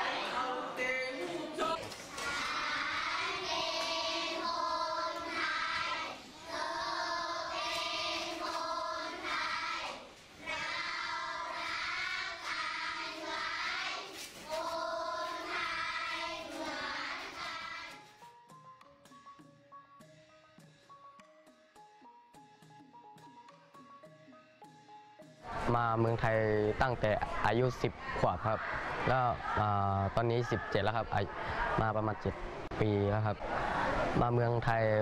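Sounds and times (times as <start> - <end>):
children singing together: 0.0 - 18.2.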